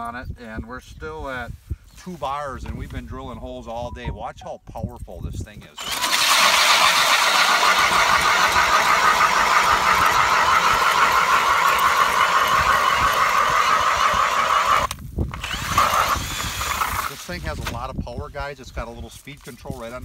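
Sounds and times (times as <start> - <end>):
drill motor whine: 5.8 - 17.2
auger grinding ice: 5.8 - 17.8.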